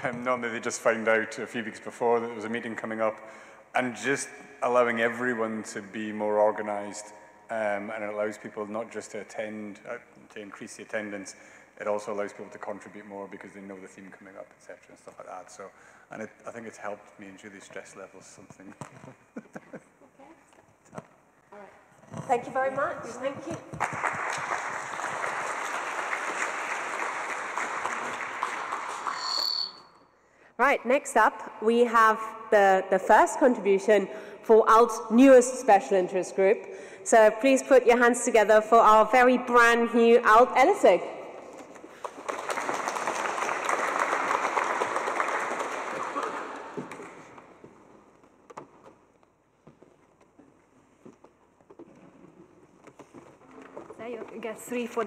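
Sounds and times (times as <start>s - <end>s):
audience applauding: 23.7s - 29.3s, 41.9s - 47.4s.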